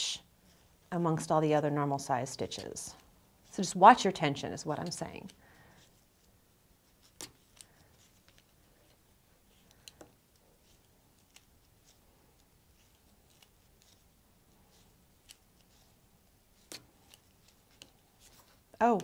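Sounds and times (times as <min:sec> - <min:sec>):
knitting needles clicking: 0:09.6 - 0:11.5.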